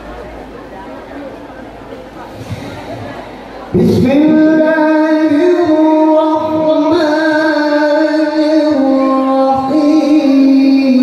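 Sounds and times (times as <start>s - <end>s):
man reciting melodically: 3.7s - 11.0s.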